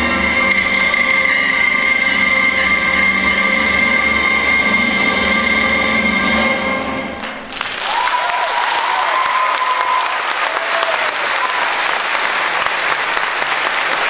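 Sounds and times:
audience applauding: 7.2s - 14.0s
high call from crowd: 7.6s - 14.0s.

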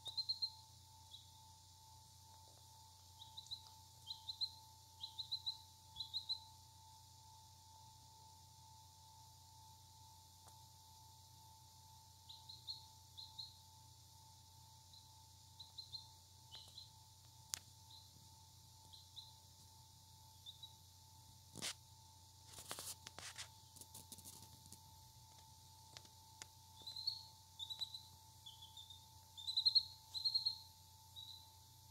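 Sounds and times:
chick peeping: 0.0s - 1.3s, 3.2s - 6.4s, 26.8s - 30.6s
faint steady hum: 0.0s - 31.9s.

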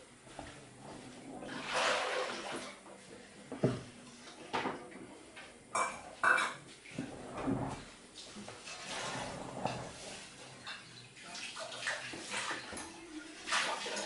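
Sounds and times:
dishes and cutlery clinking: 5.7s - 6.8s.

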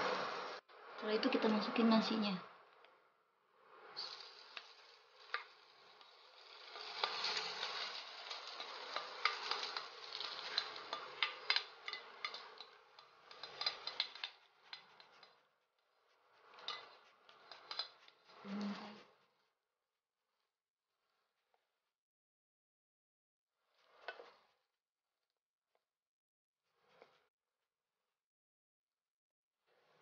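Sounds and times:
rice sizzling in hot oil: 4.0s - 15.3s
spatula scraping and stirring: 4.0s - 19.5s, 23.6s - 24.7s
utensil clicking on bowl and pan: 6.7s - 15.3s, 16.7s - 18.0s.

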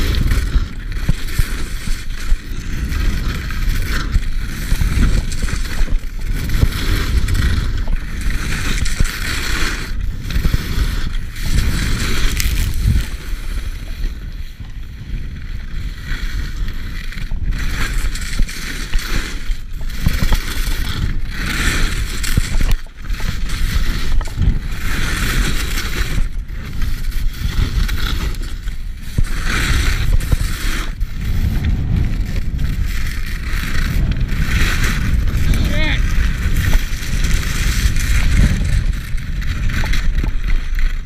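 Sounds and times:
low rumble: 0.0s - 16.8s, 29.2s - 41.0s
skis hissing and scraping on snow: 0.0s - 41.0s.

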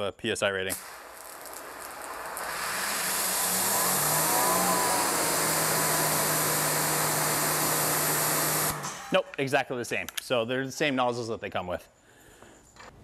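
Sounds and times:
water hissing from nozzle: 0.7s - 8.9s
pressure washer motor humming: 0.7s - 9.1s.

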